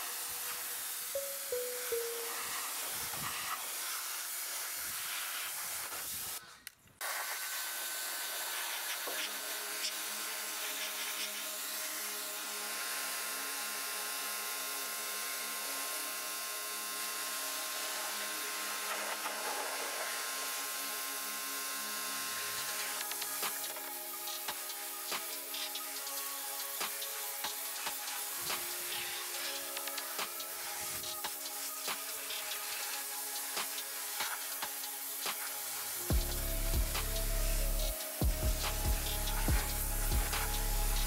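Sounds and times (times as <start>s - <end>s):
pressure washer spraying: 0.0s - 12.2s, 22.4s - 41.0s
steady hum: 35.9s - 41.0s.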